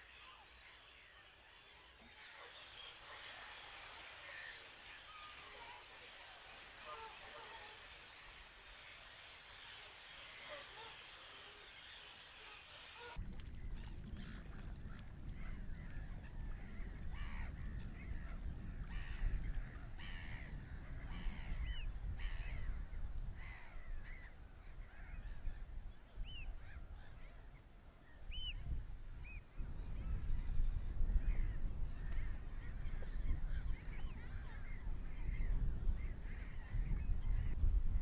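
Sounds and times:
bird calls: 0.0 - 14.5
water hissing: 2.5 - 13.2
wind rumbling on microphone: 11.6 - 38.0.

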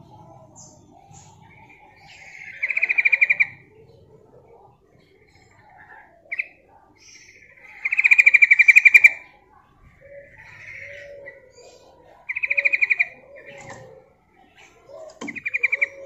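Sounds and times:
bird chattering calls: 0.0 - 4.3, 10.0 - 16.0.

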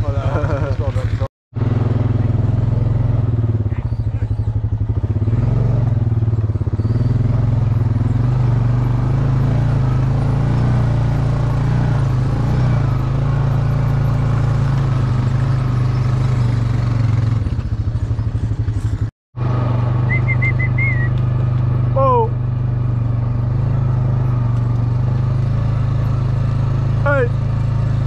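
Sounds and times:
quad bike engine running: 0.0 - 28.0
warbling whistle: 20.1 - 21.1.

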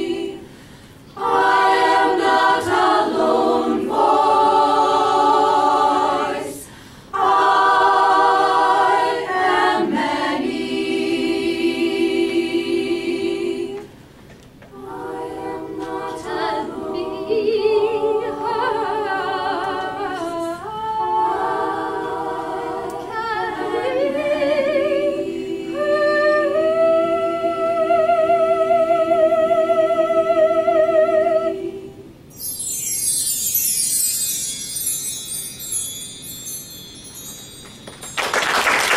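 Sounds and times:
women's choir singing: 0.0 - 0.5, 1.1 - 13.9, 14.7 - 32.2.

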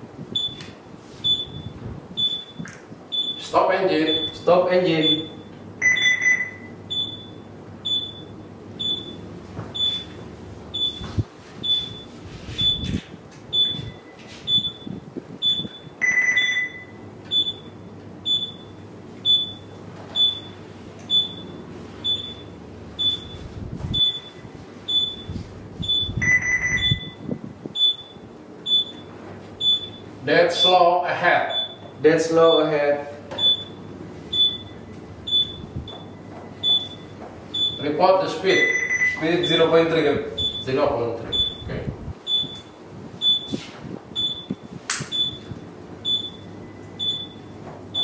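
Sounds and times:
steady low hum: 0.0 - 48.0
short high alarm beeps: 1.2 - 3.5, 4.1 - 9.2, 9.8 - 30.0, 31.5 - 32.7, 33.4 - 37.9, 38.5 - 39.6, 40.4 - 41.7, 42.3 - 43.6, 44.2 - 48.0
lower longer alarm tone: 1.2 - 30.0, 33.4 - 39.7.

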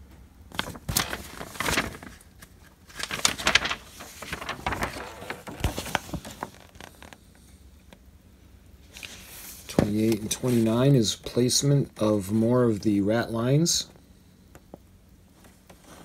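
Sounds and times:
paper pages rustling: 0.5 - 7.2, 8.9 - 10.9.

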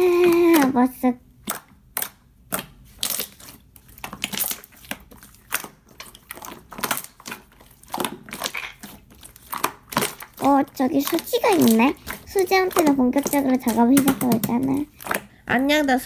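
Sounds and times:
slime popping and crackling: 0.0 - 16.0.

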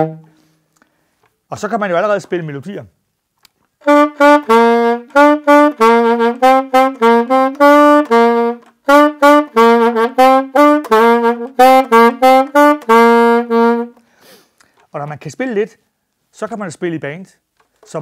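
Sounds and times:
saxophone melody: 0.0 - 0.6, 3.8 - 14.1.

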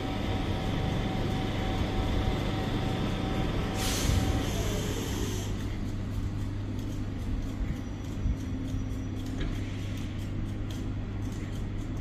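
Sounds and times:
locomotive equipment hum: 0.0 - 12.0
air release hiss: 3.7 - 5.6.

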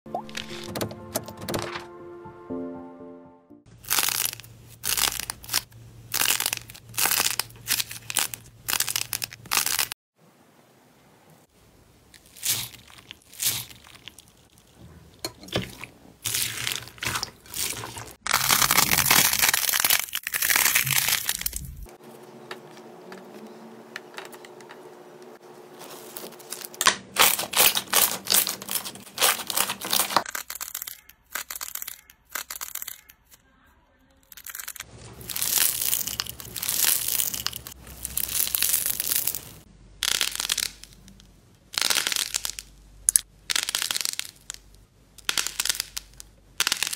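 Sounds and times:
foam beads crunching in slime: 3.8 - 10.0, 12.2 - 14.7, 16.2 - 21.8, 25.8 - 33.3, 34.2 - 46.9
sticky slime squishing: 12.2 - 14.8, 15.6 - 21.8, 25.8 - 33.4.

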